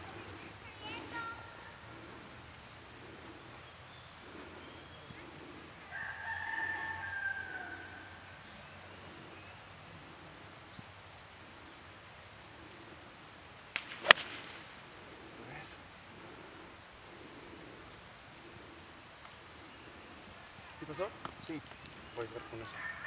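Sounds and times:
faint outdoor background: 0.0 - 23.0
rooster crowing: 5.9 - 8.4, 22.5 - 23.0
golf club strike click: 13.7 - 14.6.

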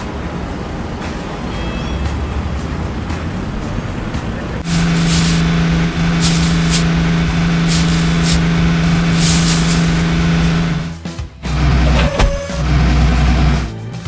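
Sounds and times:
short air hisses: 4.6 - 10.3
droning machinery engine: 4.6 - 13.7.

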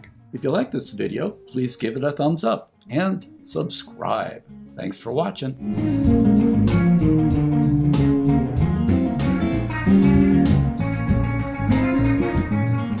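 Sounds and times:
instrumental guitar music with beat: 2.6 - 4.9, 5.6 - 13.0.

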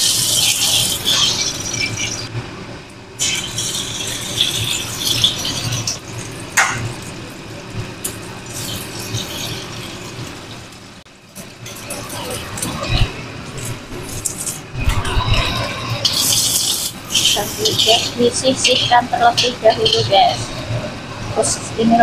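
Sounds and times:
oil sizzling in a wok: 0.0 - 2.3, 3.2 - 13.0, 16.0 - 20.6.

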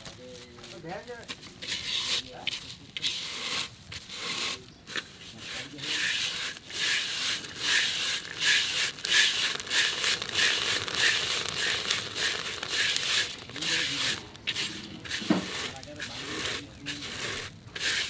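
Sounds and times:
sticks scraping sand in pot: 0.0 - 18.0.

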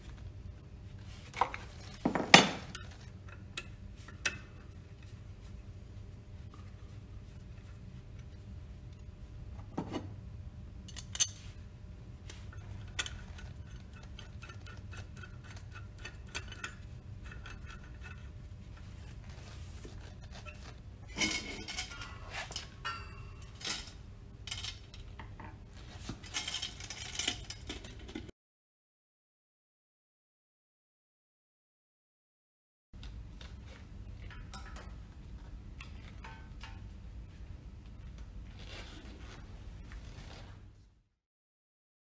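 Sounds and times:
low steady hum: 0.0 - 28.3, 33.0 - 41.1
metallic clinks and scrapes: 10.9 - 11.6, 12.2 - 25.1, 25.8 - 28.3.

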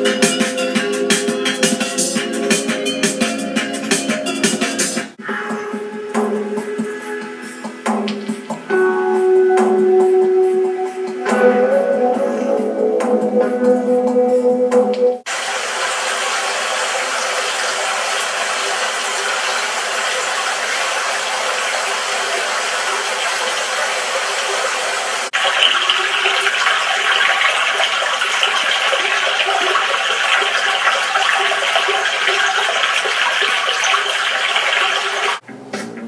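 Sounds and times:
small cascade splashing: 15.3 - 35.4
stream water rushing: 15.3 - 35.4.

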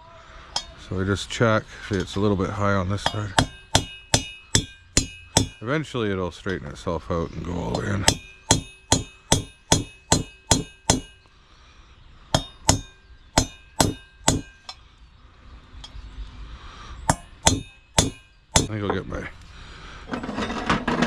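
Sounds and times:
hammer tapping metal: 0.6 - 0.8, 3.0 - 5.6, 7.7 - 11.3, 12.3 - 14.8, 17.1 - 19.0.

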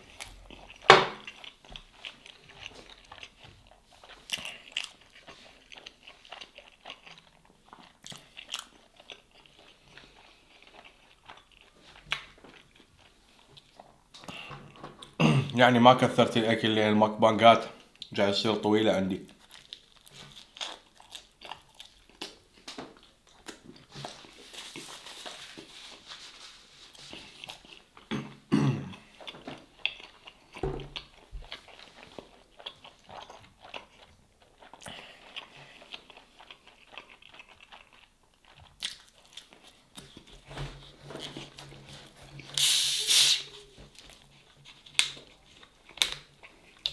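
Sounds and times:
crunchy chewing: 0.0 - 14.5, 19.3 - 25.6, 28.9 - 42.8.

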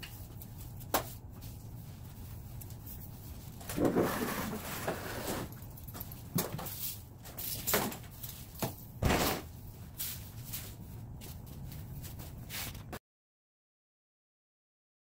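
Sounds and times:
broom sweeping concrete floor: 0.0 - 5.6, 6.6 - 13.0.

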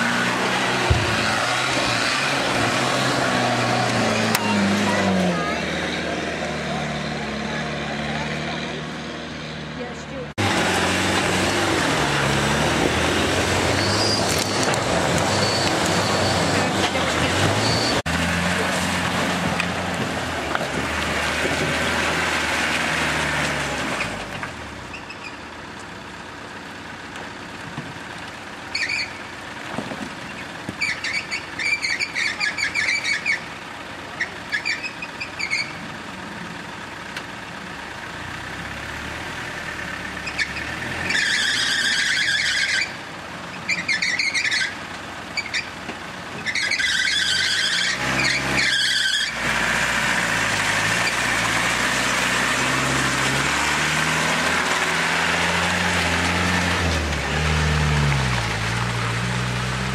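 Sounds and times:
engine labouring under load: 0.0 - 59.9
short high-pitched squeals: 13.7 - 16.7.

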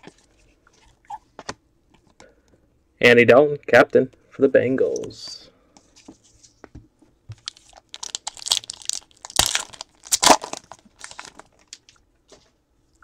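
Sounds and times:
foil wrapper crinkling and tearing: 7.4 - 12.0.

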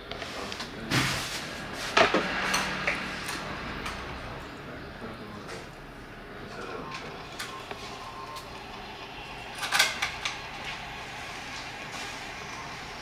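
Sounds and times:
steady room hiss: 3.0 - 13.0.

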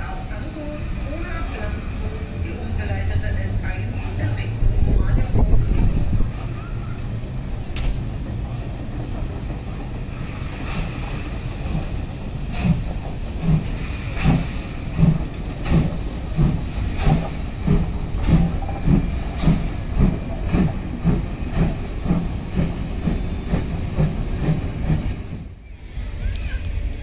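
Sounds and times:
steam locomotive exhaust beats: 0.0 - 27.0
steam hiss: 8.8 - 27.0.

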